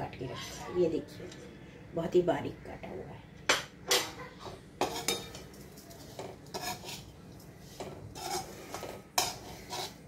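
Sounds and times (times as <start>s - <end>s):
steel ladle scraping a pan: 4.8s - 10.0s.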